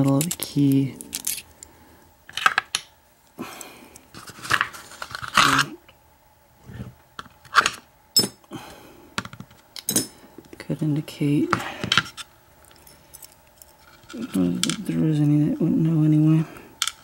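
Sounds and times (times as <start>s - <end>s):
small metal parts clicking: 0.0s - 1.6s, 12.6s - 15.3s, 16.8s - 17.0s.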